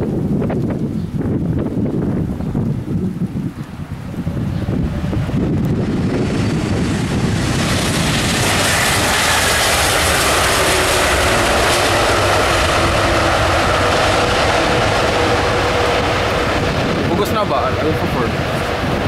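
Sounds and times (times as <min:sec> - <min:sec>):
jet engines running loud: 0:00.0 - 0:19.0
wind rumbling on microphone: 0:00.0 - 0:19.0
steady engine whine: 0:04.0 - 0:19.0.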